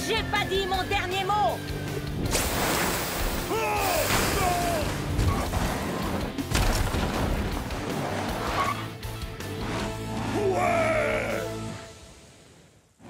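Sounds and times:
cartoon background music: 0:00.0 - 0:11.9
crash and impact effects: 0:02.3 - 0:08.5.

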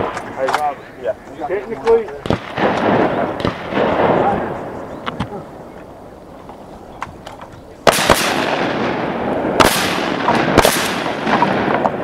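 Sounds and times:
shotgun blasts with echo: 0:02.2 - 0:05.4, 0:07.8 - 0:12.0.

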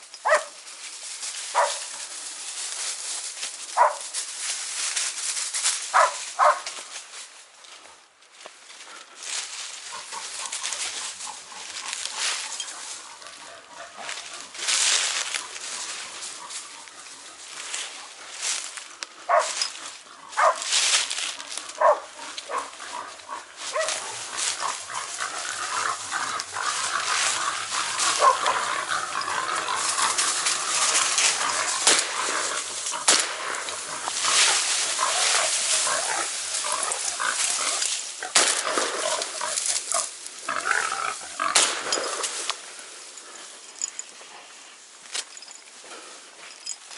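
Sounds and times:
brush and dry leaves rustling: 0:00.0 - 0:46.9
dogs barking: 0:00.2 - 0:00.6, 0:01.5 - 0:02.0, 0:03.7 - 0:04.1, 0:05.9 - 0:06.7, 0:09.8 - 0:18.1, 0:19.2 - 0:20.8, 0:21.5 - 0:40.2
boar squealing and grunting: 0:21.5 - 0:42.3.

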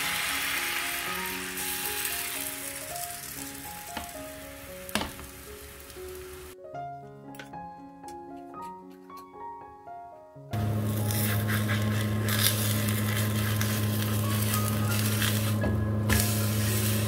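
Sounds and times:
batter sizzling in frying pan: 0:00.0 - 0:06.6, 0:10.7 - 0:17.0
background music: 0:00.0 - 0:17.0.

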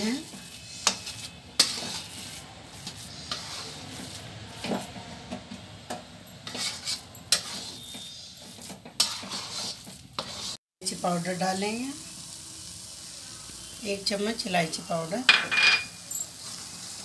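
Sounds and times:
spatula scraping metal pan: 0:00.0 - 0:05.0, 0:06.4 - 0:10.6.

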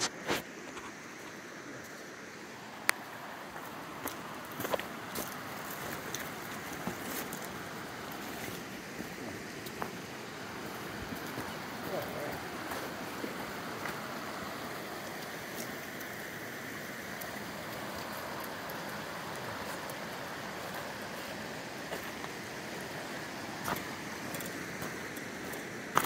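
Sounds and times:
river running over rocks: 0:00.0 - 0:26.0
footsteps on stones: 0:03.6 - 0:07.5, 0:20.8 - 0:22.5, 0:23.5 - 0:26.0.

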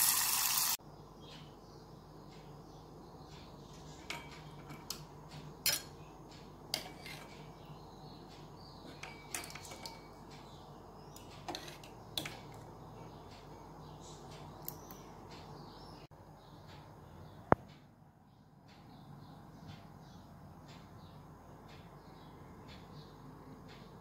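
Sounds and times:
steel ladle clinking on pot: 0:05.6 - 0:06.0, 0:08.9 - 0:10.2.

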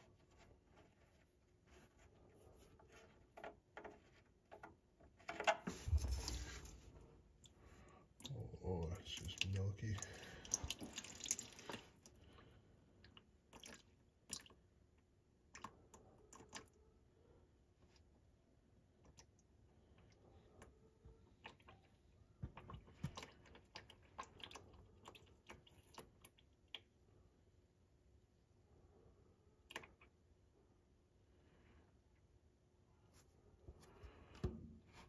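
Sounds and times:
small drips and ticks: 0:07.4 - 0:16.8, 0:19.0 - 0:27.0
oil splattering and dripping: 0:09.1 - 0:12.2, 0:13.1 - 0:14.6.

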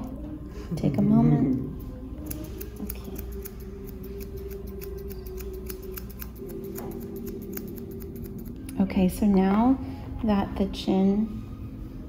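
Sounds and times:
shears snipping hair: 0:02.2 - 0:08.6.

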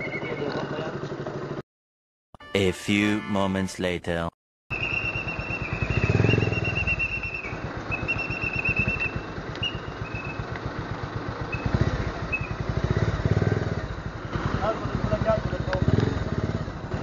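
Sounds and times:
motorcycle engine revving: 0:04.7 - 0:17.0.

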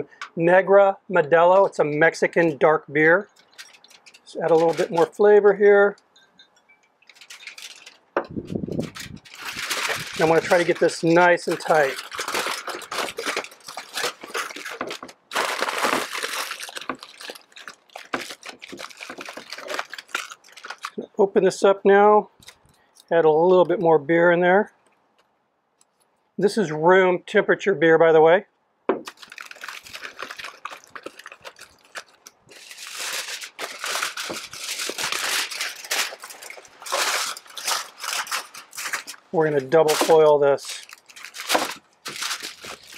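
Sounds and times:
aluminium foil crinkling: 0:01.6 - 0:21.1, 0:22.3 - 0:23.1, 0:29.1 - 0:42.9.

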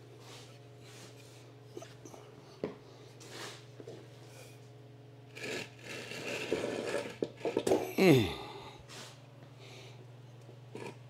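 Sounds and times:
wooden blocks scraping on concrete: 0:05.3 - 0:07.9.

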